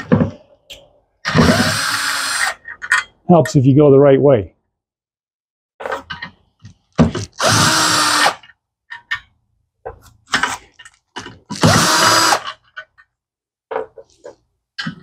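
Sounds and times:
cordless drill whining: 1.3s - 2.6s, 7.2s - 8.5s, 11.6s - 12.6s.

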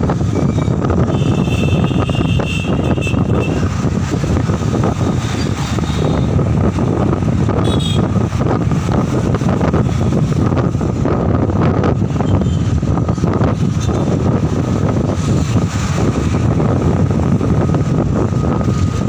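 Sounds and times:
moving vehicle rumble: 0.0s - 19.0s
road traffic: 0.0s - 19.0s
wind buffeting microphone: 0.0s - 19.0s
vehicle horn: 1.0s - 3.6s, 7.6s - 8.1s.

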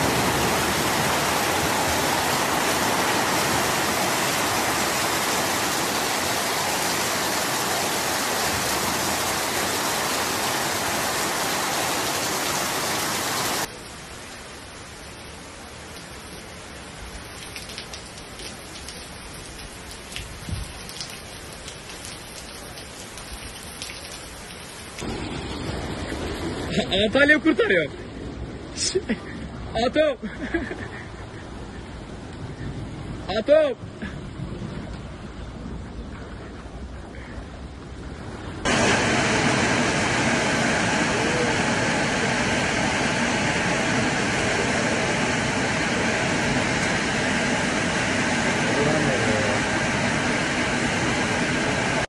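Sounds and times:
heavy rain pouring: 0.0s - 36.0s, 36.7s - 52.0s
raindrops ticking close by: 15.0s - 26.6s.

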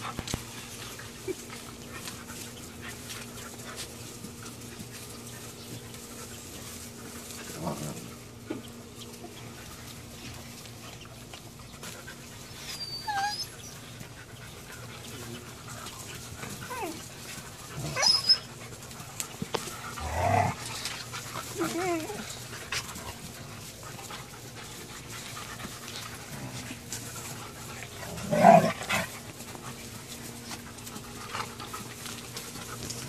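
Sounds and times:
puppies panting: 0.0s - 33.0s
puppies whining and squealing: 11.7s - 18.8s, 20.0s - 22.6s.

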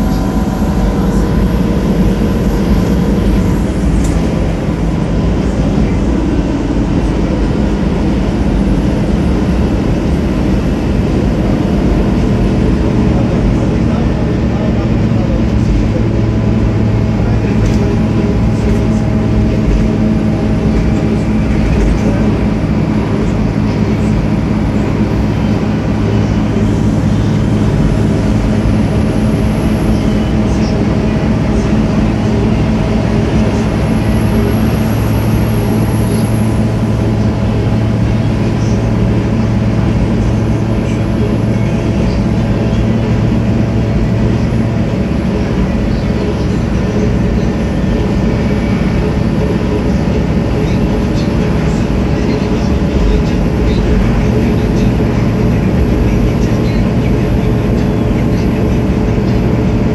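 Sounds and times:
bus engine drone: 0.0s - 59.9s
faint high whine: 0.0s - 59.9s
road noise: 0.0s - 59.9s.

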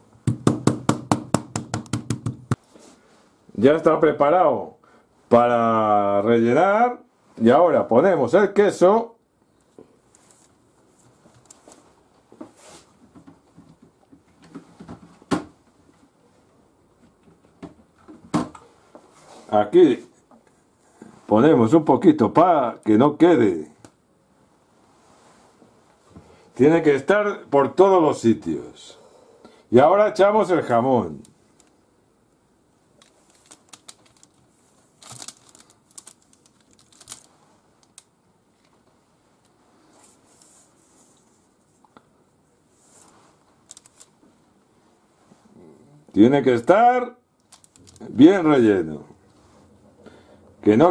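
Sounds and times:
hands rustling and tapping: 0.2s - 2.7s, 33.0s - 42.1s
baking paper rustling: 33.0s - 38.0s, 42.8s - 44.1s
paper crinkling: 33.0s - 38.1s, 43.0s - 44.1s, 47.4s - 48.1s.

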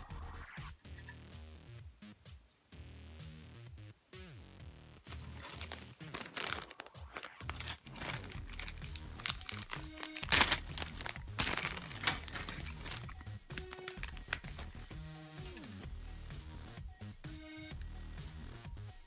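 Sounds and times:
background music: 0.0s - 19.0s
plastic bag crinkling: 5.0s - 15.0s.

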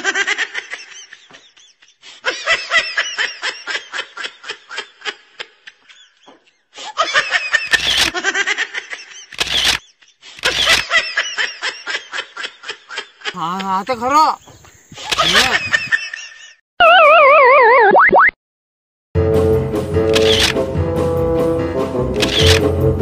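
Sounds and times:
people laughing: 0.0s - 9.3s, 10.0s - 14.1s, 15.0s - 16.6s.

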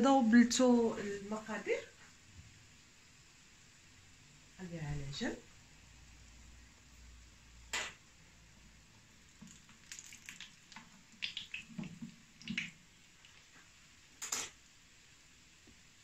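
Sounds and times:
fritters frying in oil: 1.5s - 16.0s
taps and clicks in pan: 7.7s - 8.0s, 14.2s - 14.6s.

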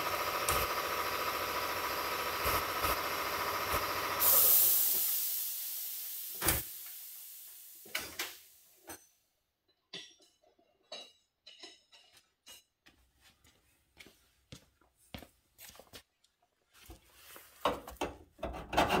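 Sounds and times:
air compressor running: 0.0s - 8.6s
hiss of released air: 3.7s - 8.7s.

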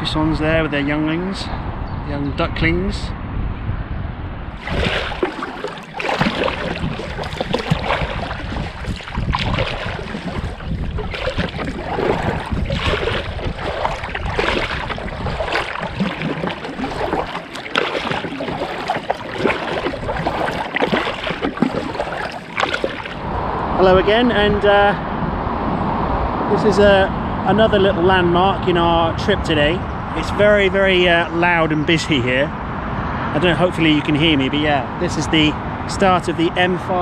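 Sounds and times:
kayak paddle splashing in water: 4.6s - 23.3s.

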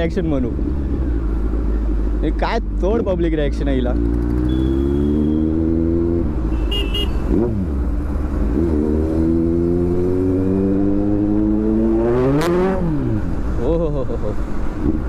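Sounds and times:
motorcycle engine revving: 3.8s - 13.6s.

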